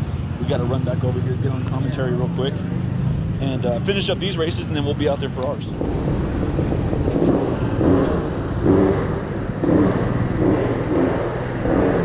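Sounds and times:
small engine revving: 0:05.8 - 0:12.0.

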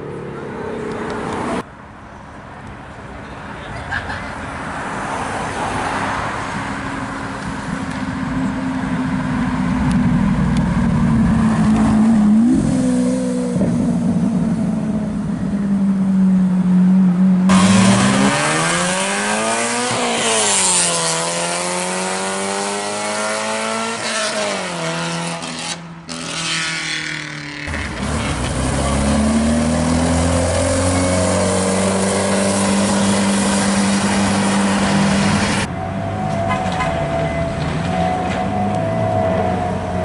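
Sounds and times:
sports car engine accelerating: 0:07.9 - 0:35.7
car engine pulling away: 0:17.5 - 0:35.7.

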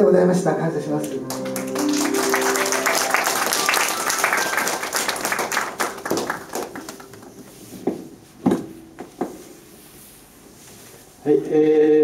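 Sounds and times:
small audience applauding: 0:01.0 - 0:07.6.

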